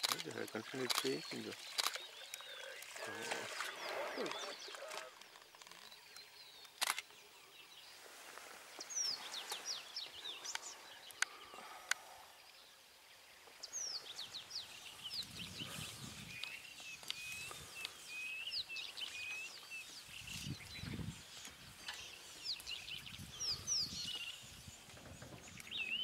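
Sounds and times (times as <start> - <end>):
sharp clicks: 0.0 - 2.4, 4.7 - 7.1
birds whistling and chirping: 13.6 - 26.0.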